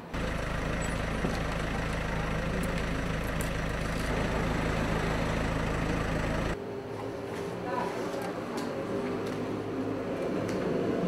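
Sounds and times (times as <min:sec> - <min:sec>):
engine humming steadily: 0:00.0 - 0:06.6.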